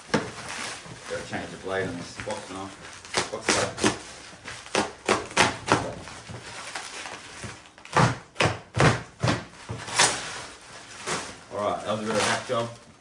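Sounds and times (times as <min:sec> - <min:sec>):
box cutter slicing plastic wrap: 0:03.1 - 0:06.0, 0:07.8 - 0:10.4.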